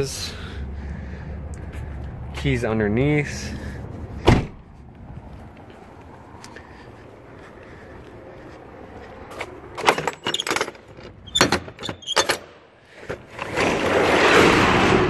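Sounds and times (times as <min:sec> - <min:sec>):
metal latch clanking and rattling: 0:09.8 - 0:12.5.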